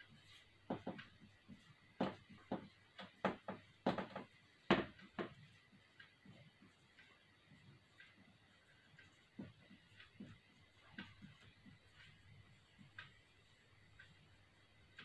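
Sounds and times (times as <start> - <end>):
marker pen writing on whiteboard: 0.2 - 5.6, 9.0 - 12.2.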